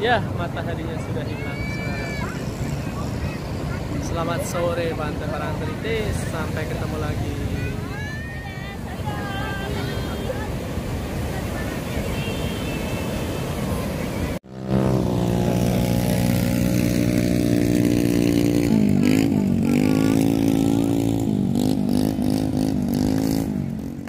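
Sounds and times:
surf on a beach: 0.0s - 24.0s
wind: 0.0s - 24.0s.

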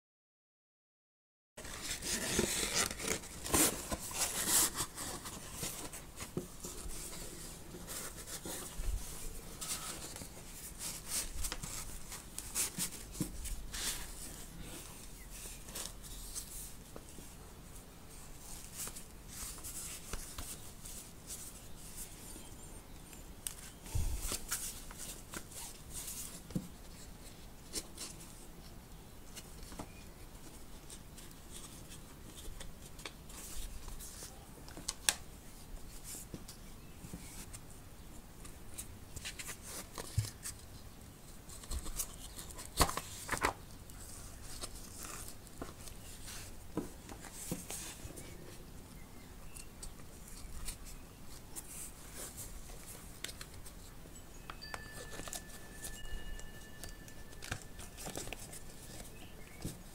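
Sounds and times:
paper notebook rustling and scraping: 1.6s - 17.3s, 54.6s - 59.9s.

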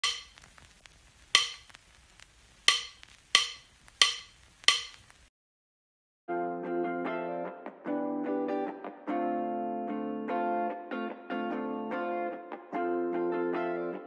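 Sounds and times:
sharp knocking clicks: 2.7s - 5.0s
plucked guitar music: 6.3s - 14.0s.

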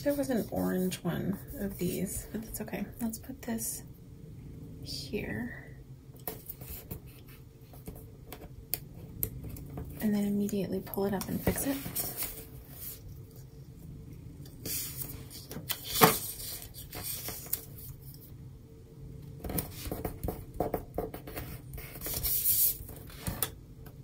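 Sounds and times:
paper rustling and sliding: 11.4s - 13.1s, 14.6s - 18.2s.

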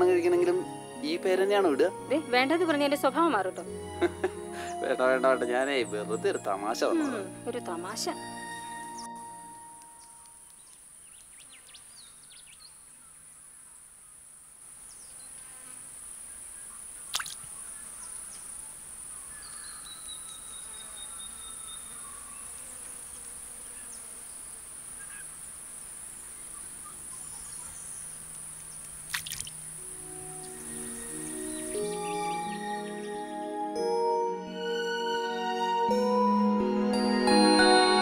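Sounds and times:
insects chirring: 14.8s - 32.6s.

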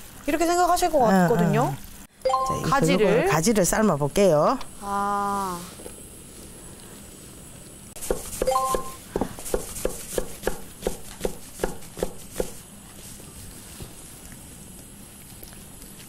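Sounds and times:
knife chopping on wooden board: 8.0s - 12.6s.

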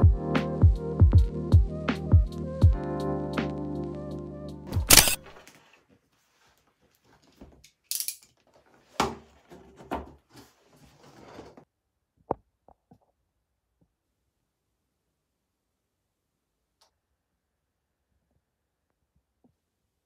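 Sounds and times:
cardboard rustling and scraping: 8.6s - 11.7s.

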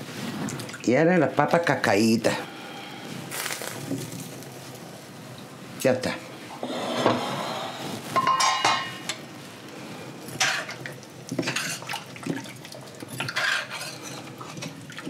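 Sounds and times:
metal spoon scraping pot: 6.6s - 9.2s, 13.2s - 14.7s.

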